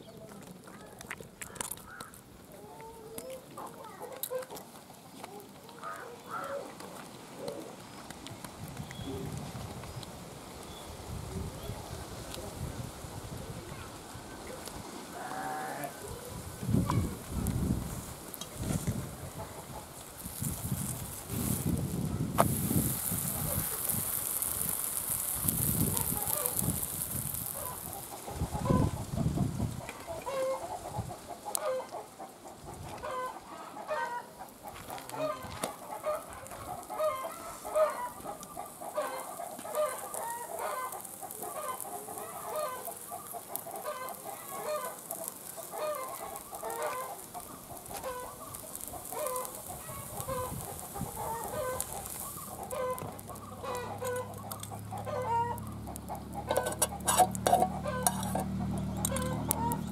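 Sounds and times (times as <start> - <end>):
hens clucking: 18.4 - 21.1, 22.8 - 59.9.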